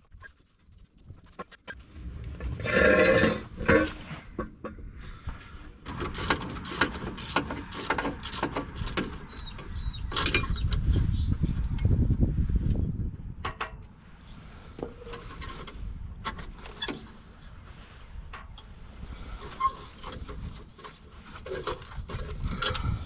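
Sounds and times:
ratchet wrench clicking: 6.0 - 9.5.

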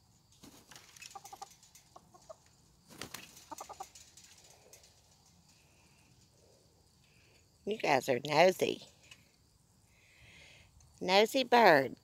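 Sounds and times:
chickens clucking: 0.3 - 6.9.

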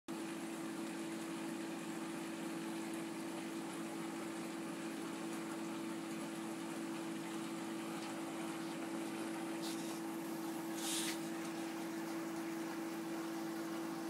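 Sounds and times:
aquarium pump humming: 0.1 - 14.0
hiss of moving water: 9.5 - 12.2.

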